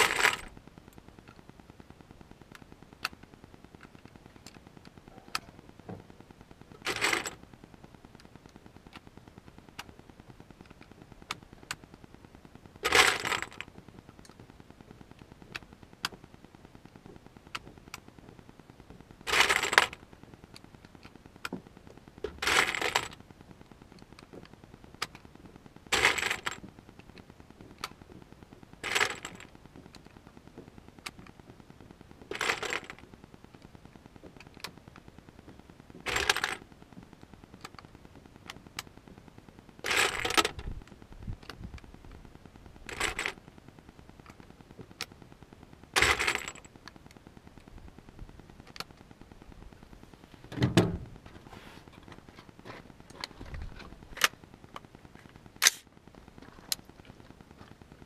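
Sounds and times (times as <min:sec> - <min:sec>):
small sharp clicks: 0:53.8 - 0:56.0.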